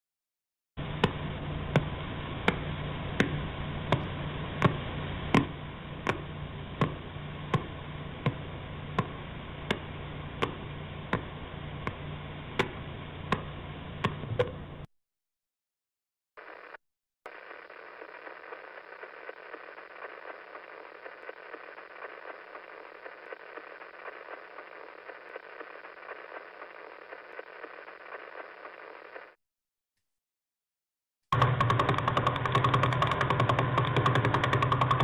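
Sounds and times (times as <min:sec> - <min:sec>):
static hiss: 0:00.8 - 0:14.9, 0:16.4 - 0:29.4
thin hum: 0:00.8 - 0:14.9.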